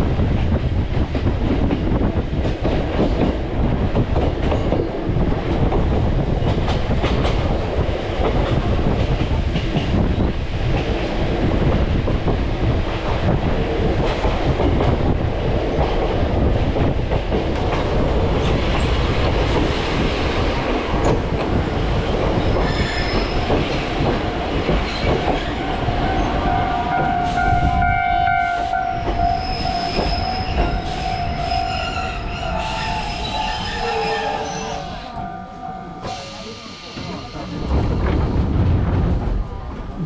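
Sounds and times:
train wheels and motor rumbling: 0.0 - 27.9, 28.6 - 40.0
metallic wheel squeal: 28.9 - 37.6.

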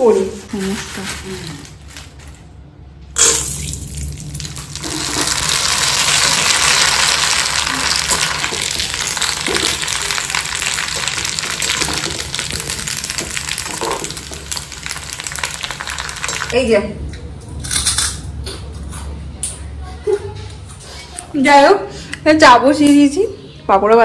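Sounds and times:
food sizzling in hot oil: 3.2 - 16.6.

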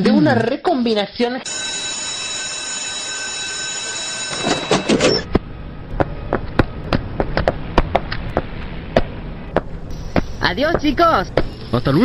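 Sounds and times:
electric bell ringing: 1.4 - 5.3
low hum: 4.3 - 11.8.

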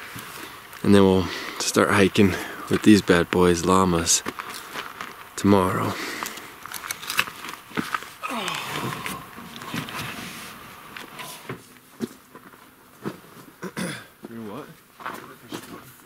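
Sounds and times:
gear rustling and knocking: 6.2 - 13.2.

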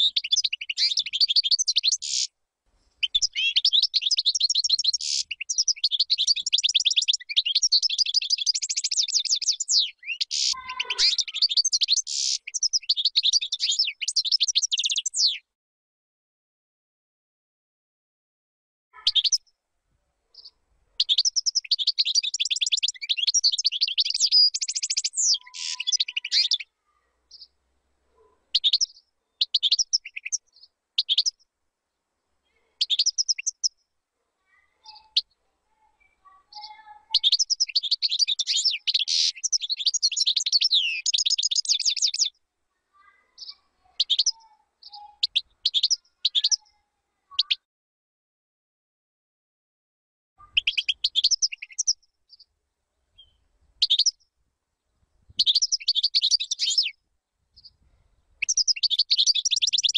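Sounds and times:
bird short calls: 0.0 - 2.3, 4.9 - 5.4, 9.7 - 14.0, 19.0 - 19.4, 23.0 - 27.5, 34.4 - 37.4, 38.2 - 40.0
finch singing high twittering: 0.0 - 2.3, 3.0 - 15.4, 19.0 - 19.4, 20.4 - 26.7, 28.6 - 31.4, 34.8 - 35.3, 36.5 - 42.3, 43.0 - 46.8, 50.4 - 52.4, 53.2 - 54.2, 55.4 - 57.0, 58.4 - 59.9.

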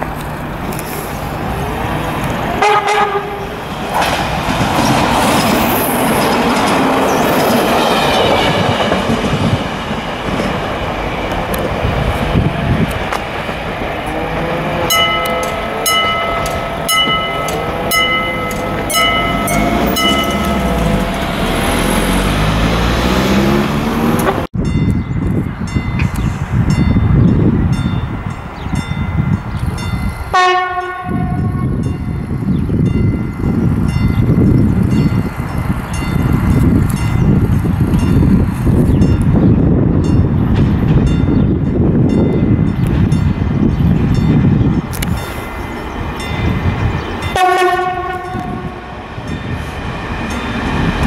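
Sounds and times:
diesel railcar engine and wheels: 0.0 - 51.0
train horn blast: 2.6 - 3.6, 30.3 - 31.8, 47.3 - 48.9
level crossing bell ringing: 14.9 - 21.5.

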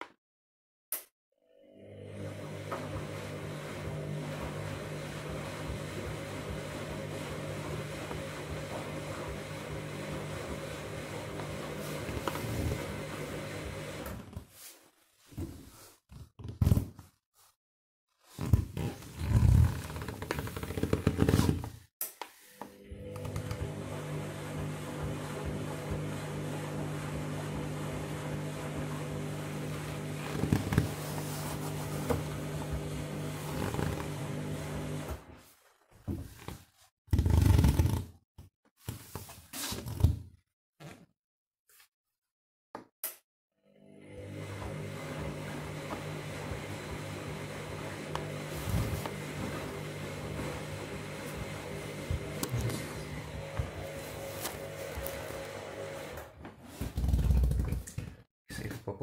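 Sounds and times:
washing machine motor hum: 1.6 - 14.4, 22.6 - 35.4, 43.6 - 58.1.

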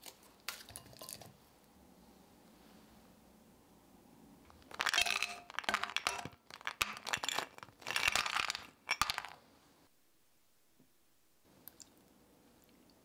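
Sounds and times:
candy cubes clattering into a saucepan: 4.5 - 9.4.

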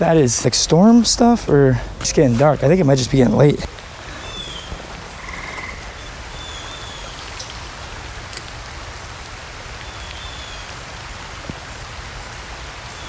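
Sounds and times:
rain falling on water and grass: 0.0 - 13.0
frogs croaking and chirping: 4.2 - 7.2.

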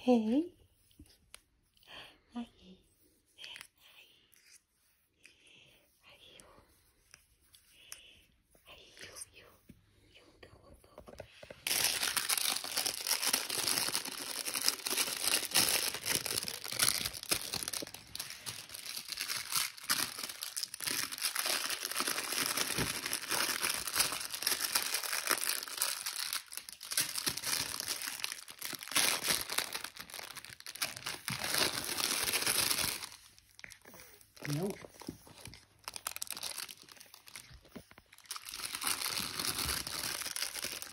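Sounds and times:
plush toy crinkling and rustling: 10.8 - 40.9.

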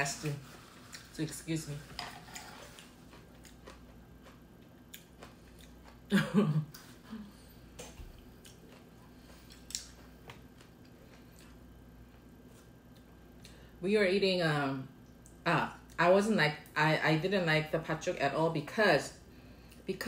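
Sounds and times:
person chewing noodles: 0.4 - 1.1, 2.1 - 13.5.

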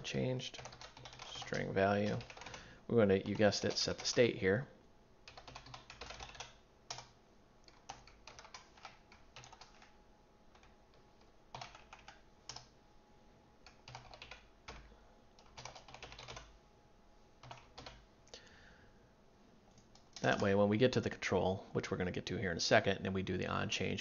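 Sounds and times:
faint keyboard typing: 0.0 - 4.4, 5.2 - 12.8, 13.6 - 16.6, 17.4 - 18.5, 19.7 - 20.6.

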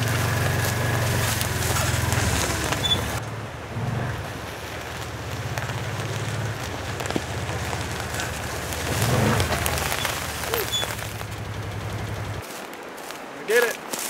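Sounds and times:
utility vehicle engine running: 0.0 - 12.4
crackling and clicking: 4.7 - 12.4.

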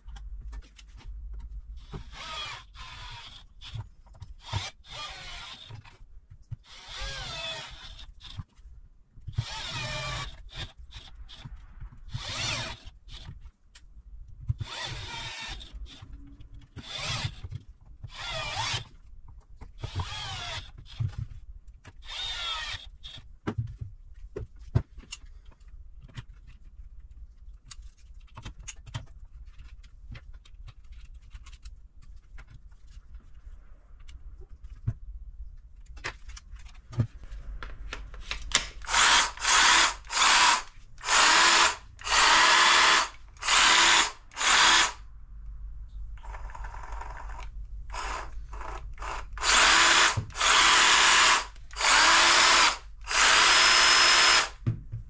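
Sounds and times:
cordless screwdriver motor: 1.8 - 5.8, 6.6 - 8.4, 9.3 - 11.5, 12.1 - 13.3, 14.6 - 16.0, 16.7 - 18.9, 19.8 - 21.1, 22.0 - 23.2, 38.5 - 45.0, 46.2 - 54.6.

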